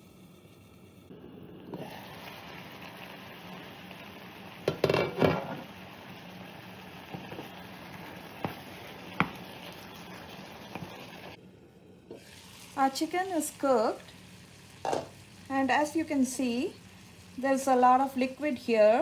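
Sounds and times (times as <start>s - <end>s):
chicken sizzling in skillet: 0.0s - 19.0s
glass lid clattering: 4.7s - 5.5s
wooden spoon tapping pan: 9.2s - 9.4s.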